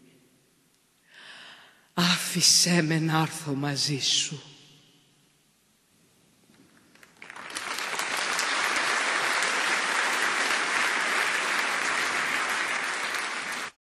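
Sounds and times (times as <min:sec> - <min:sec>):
audience applauding: 0:06.9 - 0:13.8.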